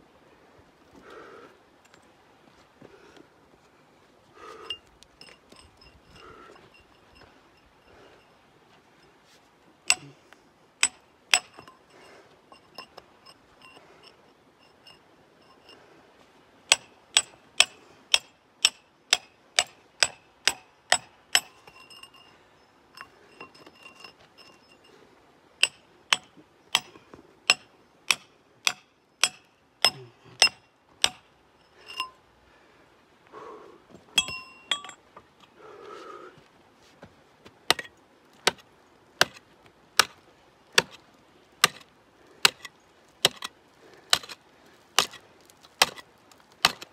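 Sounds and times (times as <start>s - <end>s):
chisel clinking on rock: 4.6s - 8.0s, 10.8s - 15.8s, 16.7s - 24.9s, 25.6s - 32.2s, 34.1s - 35.0s.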